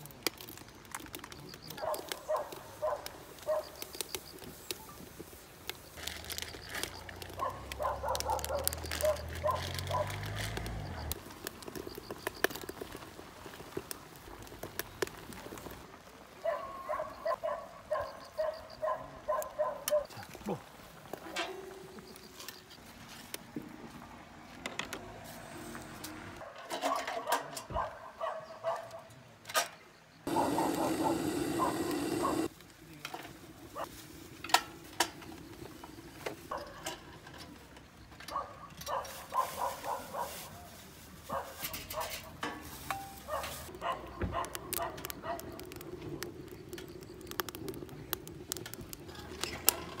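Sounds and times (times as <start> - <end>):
wood fire crackling: 0.0 - 24.0, 30.3 - 50.0
animal calling: 30.3 - 32.5
butane torch hissing: 30.3 - 32.6.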